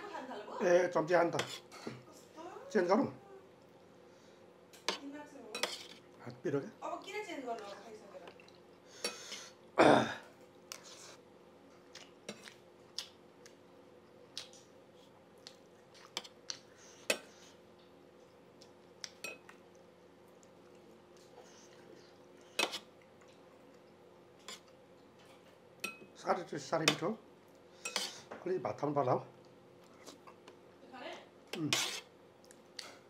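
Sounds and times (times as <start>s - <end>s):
faint steady hum: 0.0s - 33.0s
metal spoon clinking on plate: 25.8s - 26.1s.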